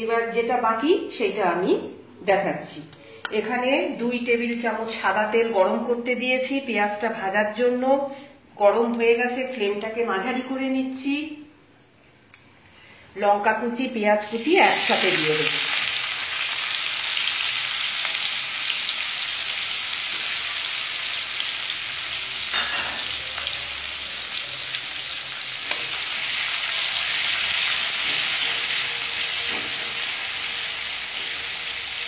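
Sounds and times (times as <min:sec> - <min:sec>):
onion sizzling in hot oil: 0:14.2 - 0:32.0.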